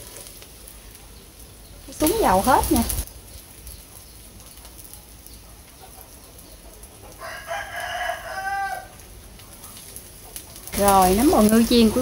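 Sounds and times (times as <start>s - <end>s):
rooster crowing: 7.1s - 9.0s.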